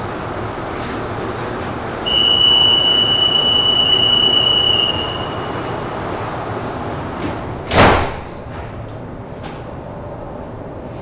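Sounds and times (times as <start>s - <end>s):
train humming: 0.0s - 7.6s
high-pitched warning tone: 2.0s - 5.8s.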